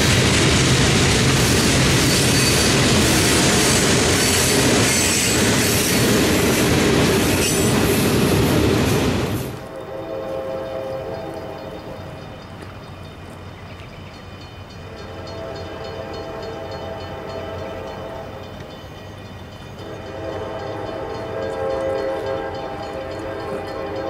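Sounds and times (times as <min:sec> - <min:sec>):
train rumble: 0:00.0 - 0:24.0
locomotive air horn: 0:09.6 - 0:12.0, 0:14.9 - 0:18.4, 0:19.8 - 0:24.0.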